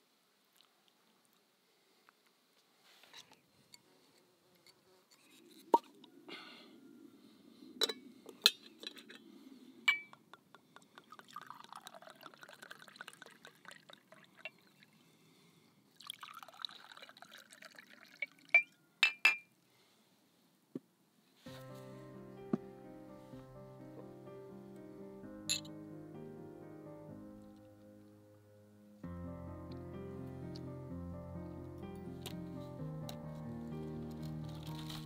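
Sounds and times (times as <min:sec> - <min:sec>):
glass clinking: 0:07.8 - 0:09.2, 0:09.9 - 0:10.3, 0:18.5 - 0:19.5, 0:25.5 - 0:25.7
wine pouring into glass: 0:11.0 - 0:14.8, 0:16.0 - 0:18.8.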